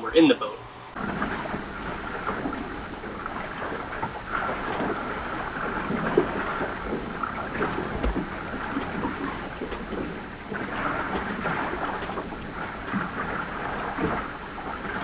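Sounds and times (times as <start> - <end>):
water slapping against hull: 1.0 - 15.0
small knocks: 6.1 - 10.3.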